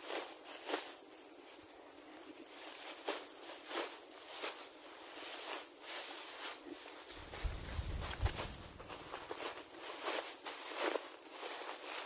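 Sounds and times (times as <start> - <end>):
grass swishing and rustling: 2.6 - 12.0.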